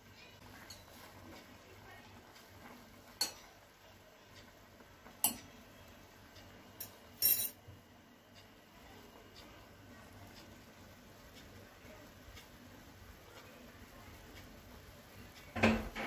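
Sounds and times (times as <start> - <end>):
metal fork clinking against pot: 0.6 - 1.0, 3.2 - 3.4, 5.2 - 5.5, 6.8 - 7.6.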